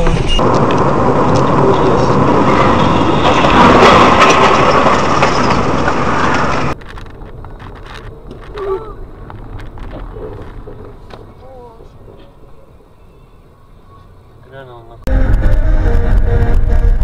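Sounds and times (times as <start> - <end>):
car road and wind noise: 0.0 - 17.0.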